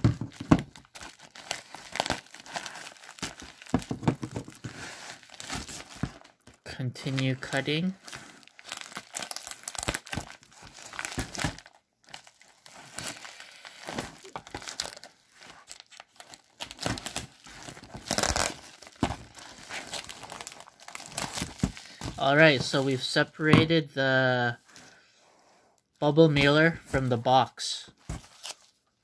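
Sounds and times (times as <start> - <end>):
packaging crinkling and rustling: 0.0 - 23.0, 28.0 - 29.0
scissors cutting package: 8.0 - 22.2.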